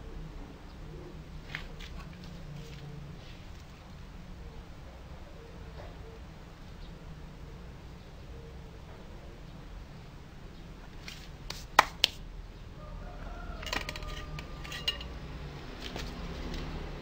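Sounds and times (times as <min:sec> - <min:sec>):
wooden parts clacking on workbench: 0:13.6 - 0:15.1.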